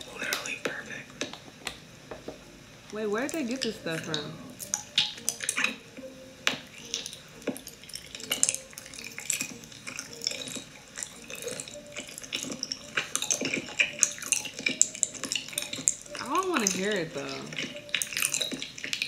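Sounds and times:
wet mouth chewing sounds: 3.6 - 6.1, 6.8 - 19.0.

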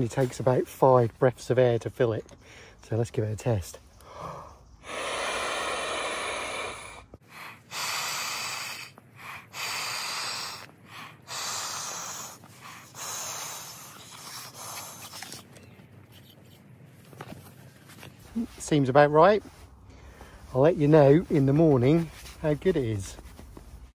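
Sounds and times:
person blowing into pillow valve: 4.8 - 15.2.

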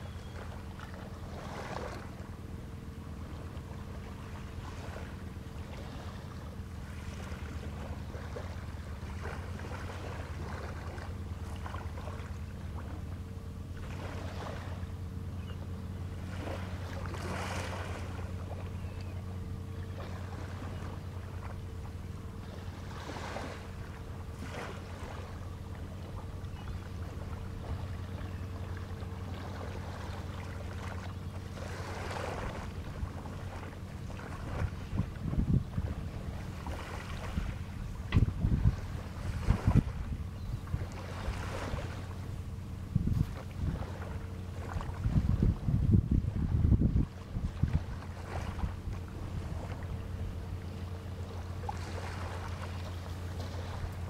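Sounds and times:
faint steady tone: 0.0 - 1.0
hissy wind or water noise: 0.0 - 54.0
outboard motor idling: 0.0 - 54.0.

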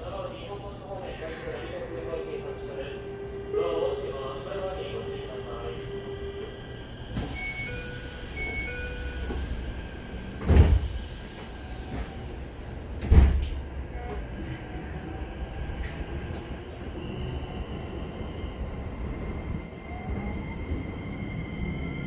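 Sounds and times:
low hum of stopped train: 0.0 - 22.0
sliding train doors thudding shut: 8.4 - 14.2.

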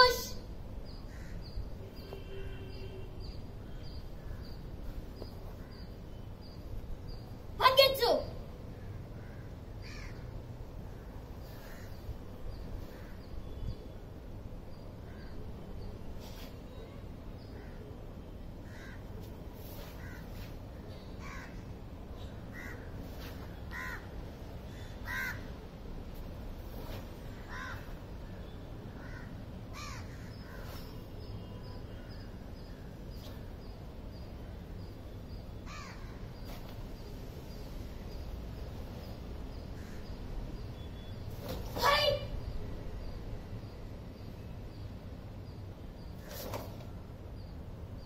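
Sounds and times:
crows cawing: 1.1 - 1.4, 8.8 - 10.3, 18.6 - 19.0, 20.0 - 20.3, 21.2 - 21.7, 22.4 - 23.0, 23.6 - 24.1, 24.7 - 25.5, 27.3 - 28.0, 29.0 - 30.7, 35.7 - 36.2, 39.8 - 40.1.

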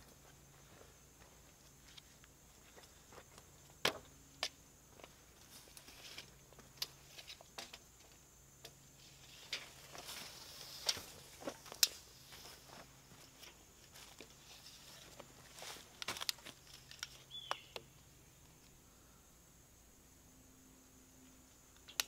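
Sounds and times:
footsteps on leaf litter: 9.7 - 17.3.

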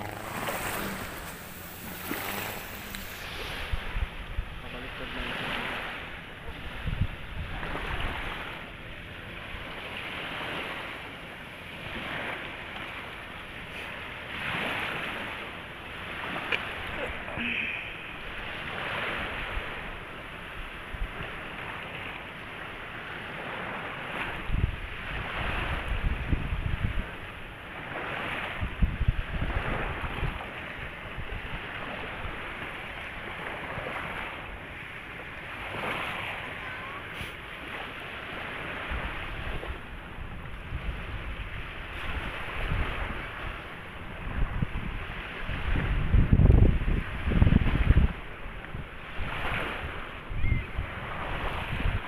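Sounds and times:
wind buffeting microphone: 0.0 - 11.0, 23.1 - 52.0
small waves washing on shore: 0.0 - 52.0.

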